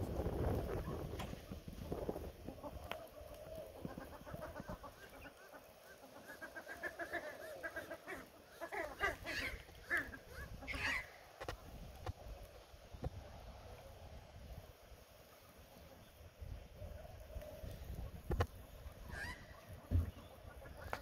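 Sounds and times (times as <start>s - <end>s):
ducks chattering: 2.4s - 11.2s, 17.6s - 21.0s.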